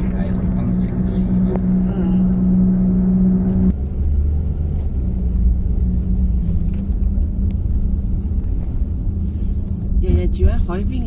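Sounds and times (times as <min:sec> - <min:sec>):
droning hum: 0:00.0 - 0:04.2
engine and tyre rumble: 0:00.0 - 0:11.0.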